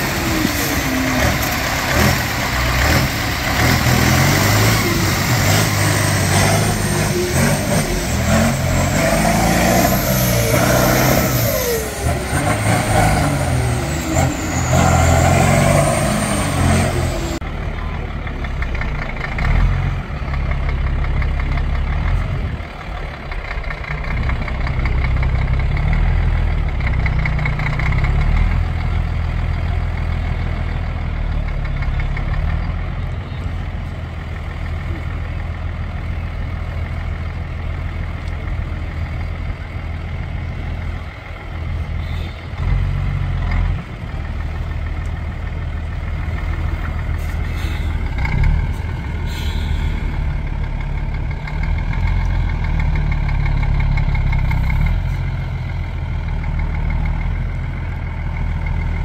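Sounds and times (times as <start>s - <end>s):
truck diesel engine at low speed: 0.0s - 59.0s.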